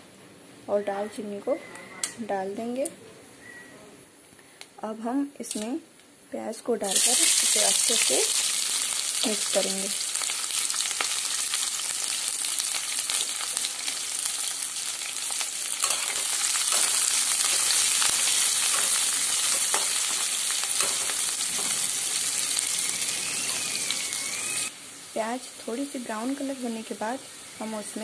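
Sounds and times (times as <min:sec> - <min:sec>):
onions sizzling in oil: 0:06.8 - 0:28.0.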